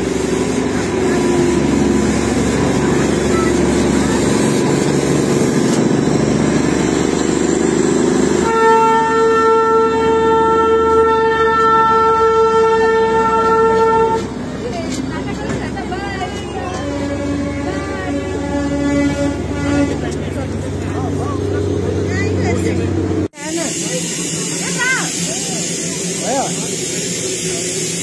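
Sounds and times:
locomotive engine rumble: 0.0s - 28.0s
train rolling past: 0.0s - 28.0s
train horn blast: 8.3s - 14.4s, 16.4s - 20.3s.

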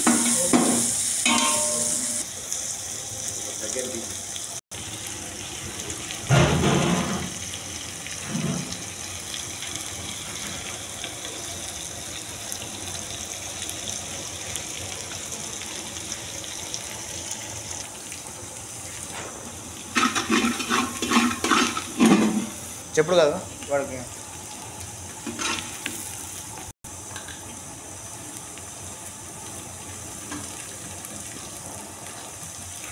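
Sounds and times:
onions sizzling in oil: 0.0s - 32.9s
ladle scraping metal pot: 20.0s - 22.5s.

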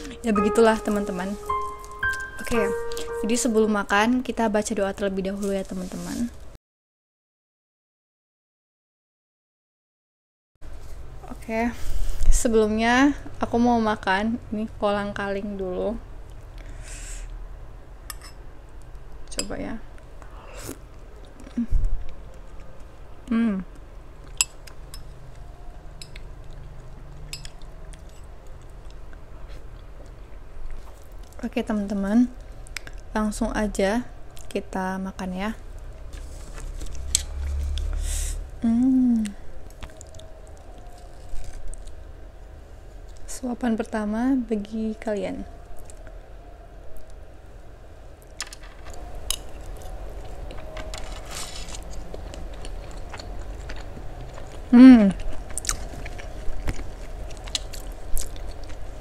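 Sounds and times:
low steady hum: 0.0s - 6.6s, 10.7s - 59.0s
chewing with wet mouth clicks: 23.7s - 31.4s, 39.6s - 42.0s, 51.8s - 59.0s.

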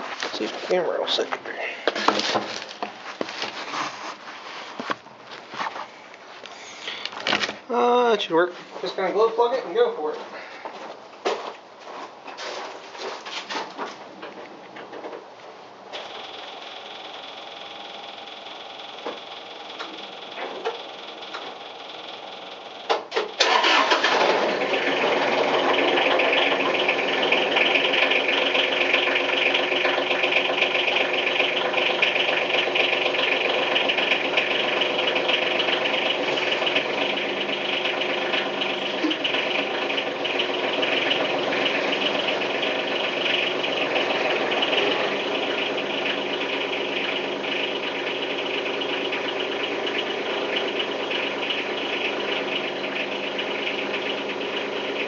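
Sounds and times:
diesel engine idling: 0.0s - 3.9s, 15.7s - 55.0s
starter motor cranking: 18.8s - 54.3s.

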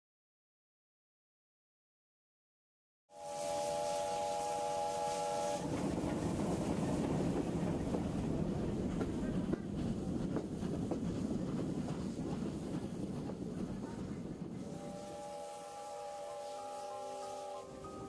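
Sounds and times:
steam locomotive whistle: 3.1s - 5.7s, 14.6s - 18.0s
train rumbling on rails: 3.2s - 18.0s.

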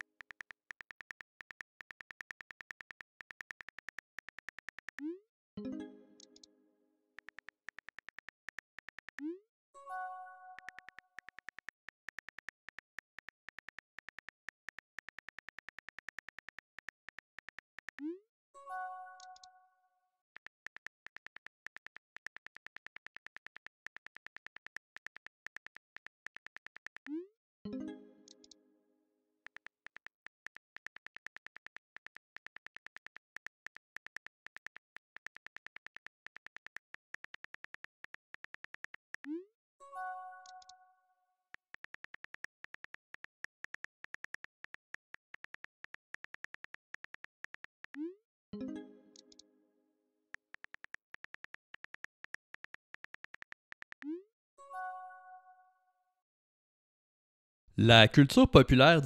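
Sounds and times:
phone keyboard clicks: 0.0s - 5.0s, 7.2s - 9.3s, 10.6s - 18.0s, 20.4s - 27.1s, 29.5s - 39.3s, 41.6s - 48.0s, 50.4s - 54.1s
message sent chime: 57.8s - 59.0s.

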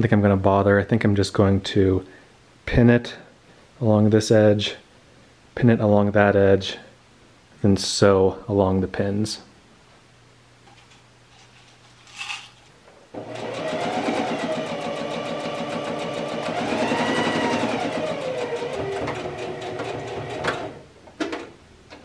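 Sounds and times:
sewing machine stitching: 13.2s - 20.8s.

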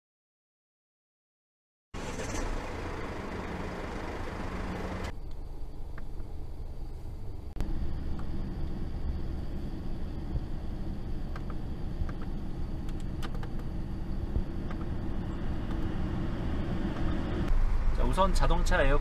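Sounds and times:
car cabin rumble: 2.0s - 5.1s, 7.5s - 19.0s.

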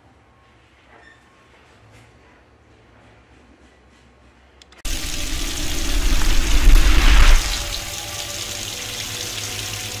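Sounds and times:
splashing gushing water: 4.9s - 10.0s.

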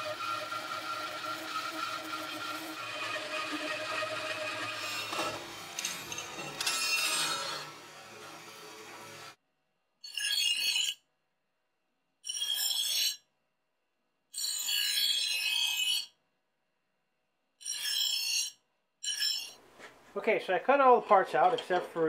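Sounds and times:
bench grinder grinding metal: 0.0s - 9.4s.

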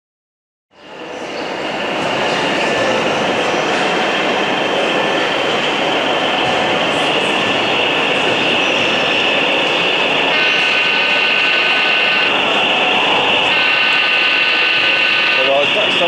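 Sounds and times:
model locomotive diesel sound: 0.8s - 16.0s
multi-note train horn: 10.3s - 12.3s.

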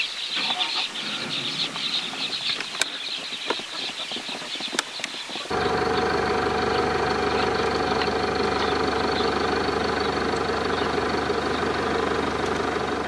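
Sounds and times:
car engine idling: 5.5s - 13.0s.

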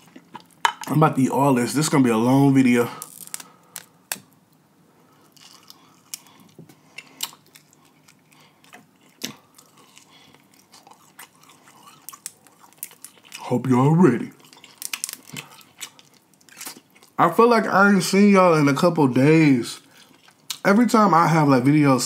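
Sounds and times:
wet chewing and mouth sounds: 0.0s - 0.9s, 5.2s - 13.5s, 14.2s - 17.2s, 19.8s - 20.6s.

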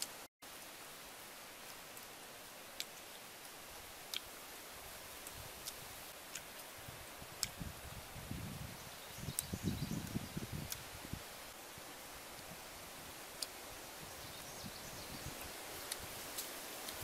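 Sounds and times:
steady hiss: 0.0s - 17.0s
soft chewing: 2.7s - 4.3s, 5.2s - 6.7s, 13.3s - 13.6s
sharp clicks from mouth and bone: 4.1s - 4.3s, 5.2s - 6.7s, 7.4s - 7.6s, 9.4s - 10.9s.

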